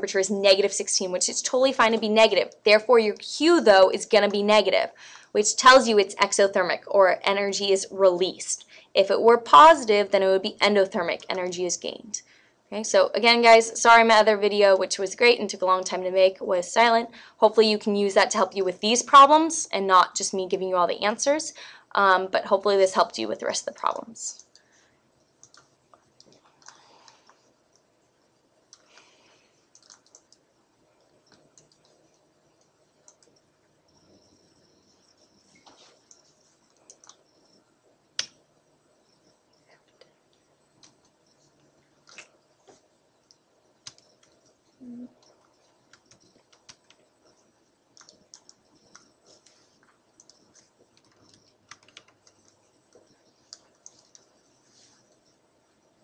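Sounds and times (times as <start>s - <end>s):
computer mouse clicks: 24.3s - 24.7s, 25.4s - 27.9s, 28.7s - 34.2s, 34.8s - 37.6s, 38.2s - 38.4s, 39.2s - 44.6s, 45.2s - 54.4s.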